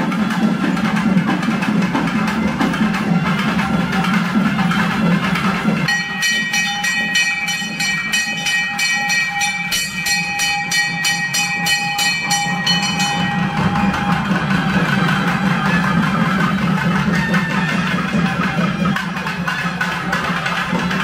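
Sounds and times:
fast even percussion: 0:00.0 - 0:21.0
long held high synth note: 0:11.6 - 0:17.8.

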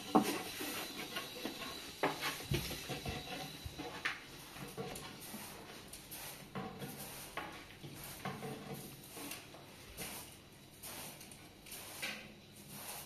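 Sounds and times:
light knocks and scrapes: 0:00.0 - 0:10.3.

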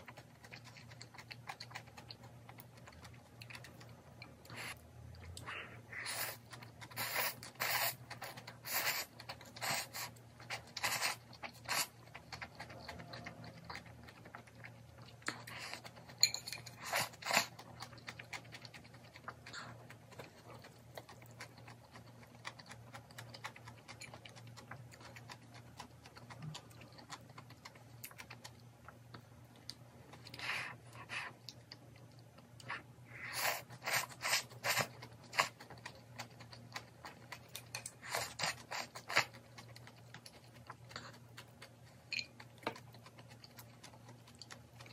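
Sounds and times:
faint low hum: 0:00.0 - 0:44.9
quiet chewing: 0:00.0 - 0:44.9
noodles slurped: 0:05.4 - 0:11.9.

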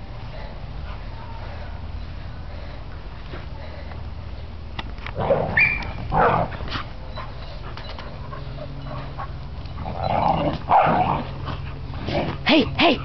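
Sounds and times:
dogs whining: 0:05.2 - 0:06.4, 0:07.0 - 0:11.0
dogs barking: 0:05.2 - 0:06.5.

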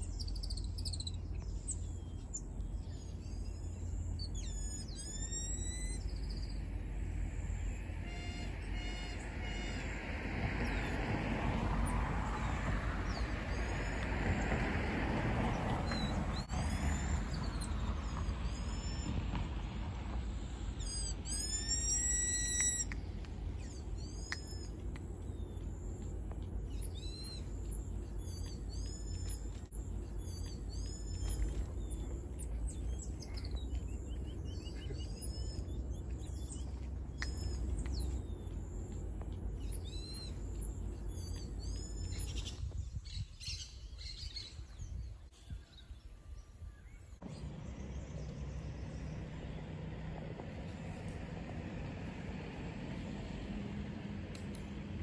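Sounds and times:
high-pitched chirping calls: 0:00.0 - 0:11.2, 0:15.5 - 0:19.1, 0:20.7 - 0:44.7.

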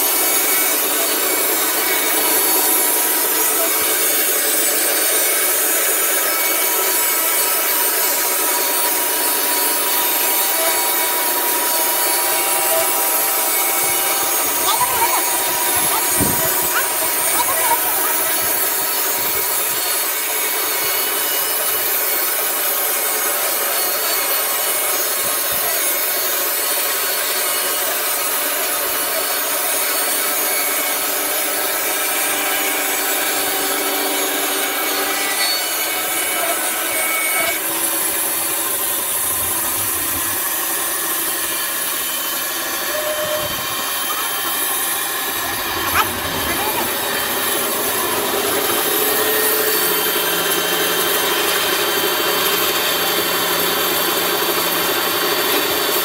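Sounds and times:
band saw cutting log: 0:00.0 - 0:56.0.

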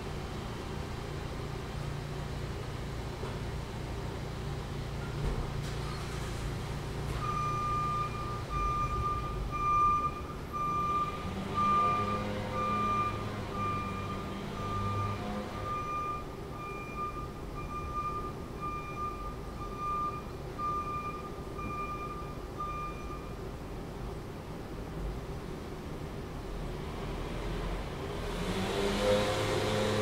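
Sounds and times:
vehicle backup alarm beeping: 0:07.1 - 0:23.5.

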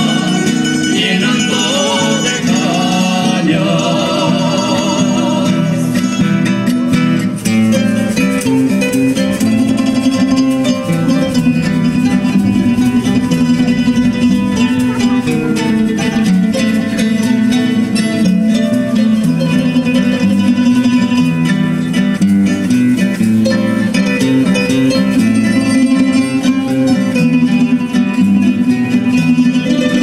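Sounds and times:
mixed voices singing: 0:00.0 - 0:06.4
plucked guitars and lutes: 0:00.0 - 0:30.0.

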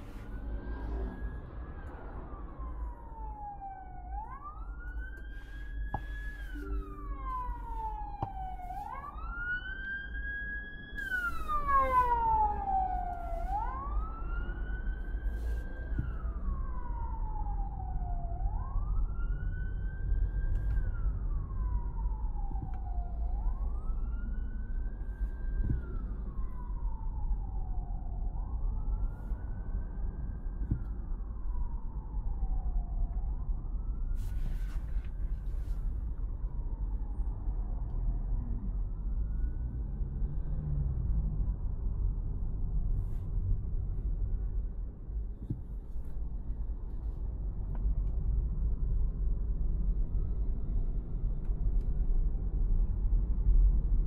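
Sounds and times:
steady low rumble: 0:00.0 - 0:40.3, 0:41.0 - 0:54.0
siren wailing: 0:00.2 - 0:34.2.

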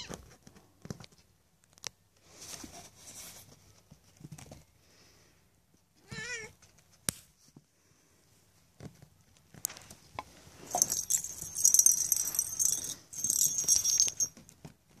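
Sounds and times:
small bell jingling: 0:10.6 - 0:14.4.

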